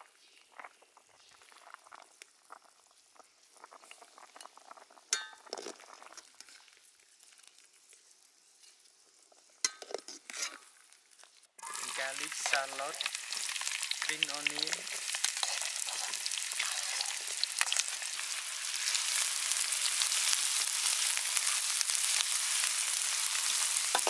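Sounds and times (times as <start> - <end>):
metal ladle clinking on pan: 5.1 - 5.5, 9.6 - 10.0
broth bubbling: 11.6 - 19.0.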